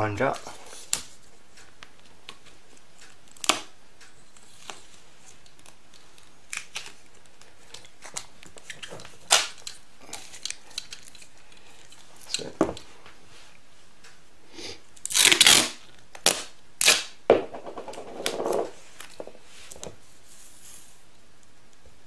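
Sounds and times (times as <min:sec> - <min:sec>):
tape ripping off roll: 0:07.8 - 0:10.9, 0:15.0 - 0:17.2.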